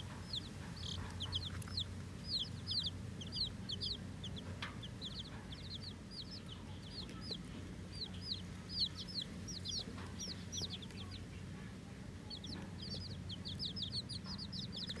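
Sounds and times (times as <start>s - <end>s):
chicks peeping: 0.0s - 15.0s
steady low hum: 0.0s - 15.0s.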